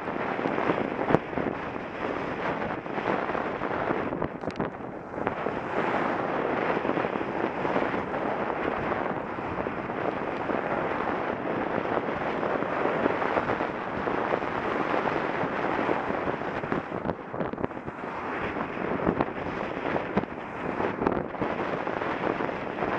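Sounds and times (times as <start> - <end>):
wind buffeting microphone: 0.0 - 22.9
short crackles: 0.4 - 6.2.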